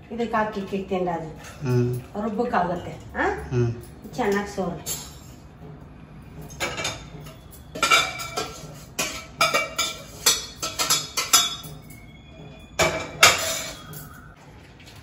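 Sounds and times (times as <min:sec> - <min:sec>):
metal ladle clinking on steel pots: 0:06.5 - 0:12.0, 0:12.8 - 0:14.1.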